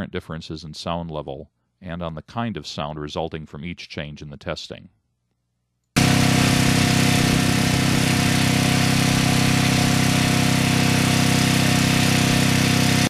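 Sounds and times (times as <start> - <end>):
portable generator running: 6.0 - 13.0.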